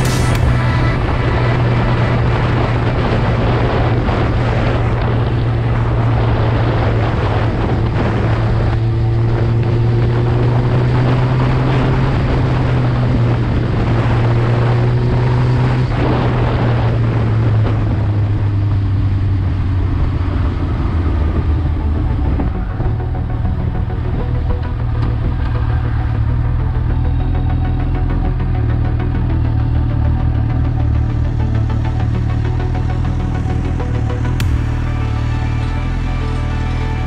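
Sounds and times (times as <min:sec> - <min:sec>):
wind noise on microphone: 0:00.0 - 0:29.2
motorcycle engine running: 0:00.0 - 0:37.0.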